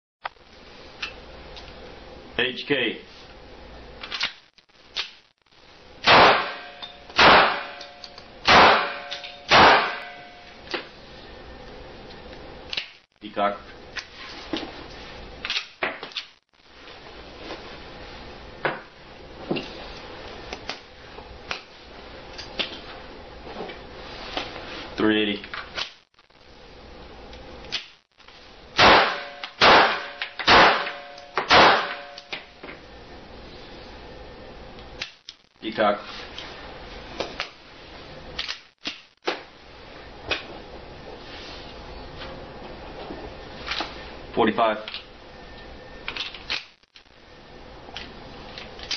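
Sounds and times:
gunshots: 6.0 - 7.8, 8.5 - 10.3, 28.8 - 32.2.

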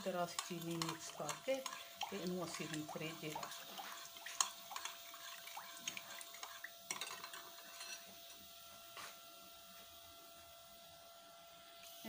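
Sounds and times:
spoon stirring in glass bowl: 0.0 - 8.1.

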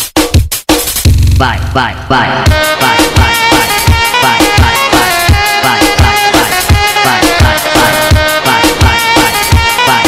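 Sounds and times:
deep bass kicks sliding down: 1.1 - 1.8.

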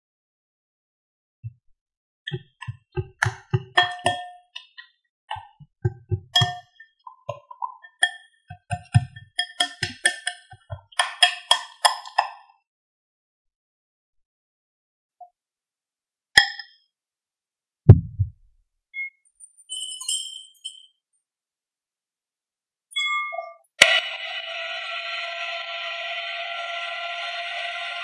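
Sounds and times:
whisk clinking against glass bowl: 5.3 - 12.4.

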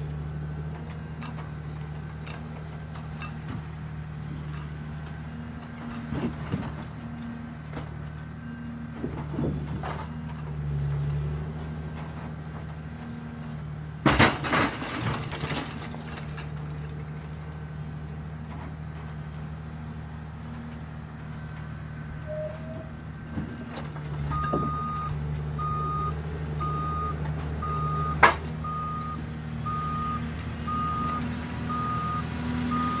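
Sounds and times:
diesel engine running: 0.0 - 33.0
wood logs clattering: 14.0 - 17.1
reversing alarm beeping: 22.2 - 22.9, 24.2 - 33.0.

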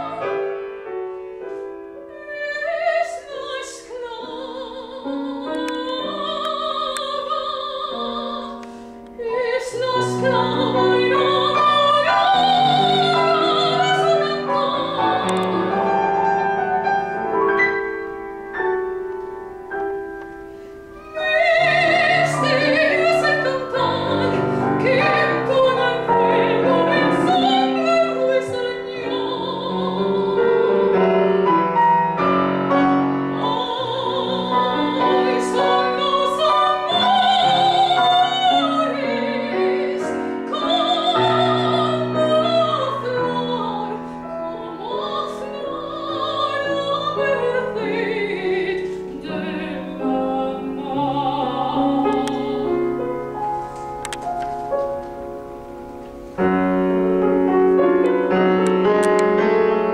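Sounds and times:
grand piano: 0.0 - 59.9
woman singing operatically: 2.1 - 8.6, 9.2 - 16.4, 21.0 - 31.1, 33.3 - 53.4.

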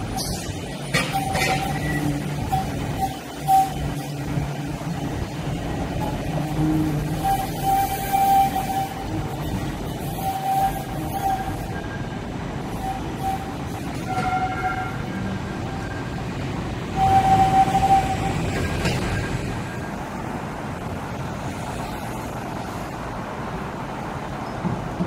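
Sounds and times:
road traffic: 0.0 - 25.0
tram: 0.0 - 25.0
horn tooting: 6.0 - 12.1, 12.7 - 15.9, 16.9 - 18.6.

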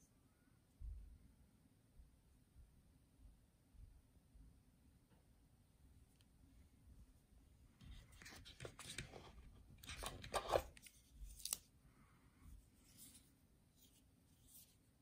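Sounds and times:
hands handling small parts: 7.8 - 11.7.

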